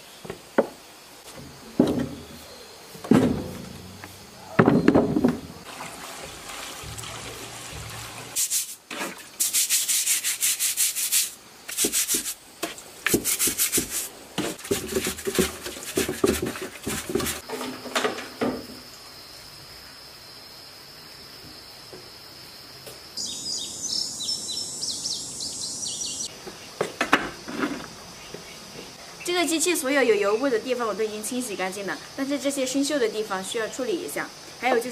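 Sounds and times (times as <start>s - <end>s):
high insect drone: 0.0s - 5.7s, 16.9s - 34.9s
stiff brush scrubbing metal: 5.7s - 12.4s, 13.1s - 17.4s.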